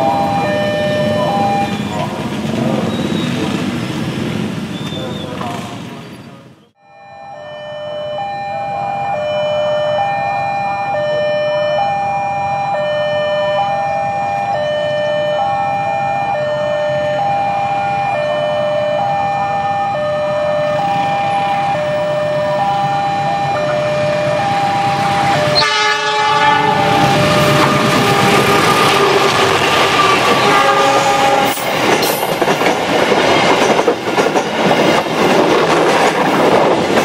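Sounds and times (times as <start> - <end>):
two-tone crossing alarm: 0.0 - 2.2, 6.8 - 31.7
train rumble: 0.0 - 6.6, 19.0 - 37.0
train horn: 20.6 - 29.3, 29.9 - 31.7.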